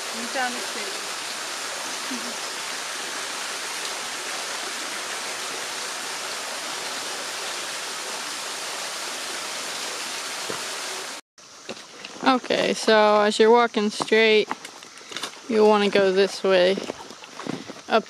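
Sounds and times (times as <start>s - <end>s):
waterfall pouring: 0.0s - 11.2s.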